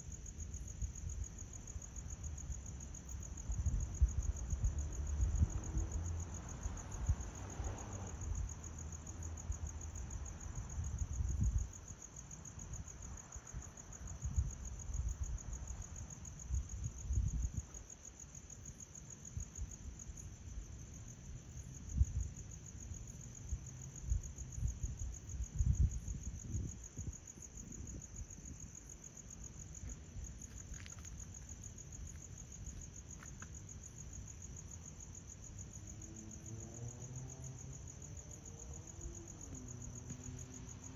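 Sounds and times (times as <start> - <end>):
crickets trilling: 0.0 - 40.9
wind buffeting microphone: 16.4 - 17.8, 24.0 - 28.9.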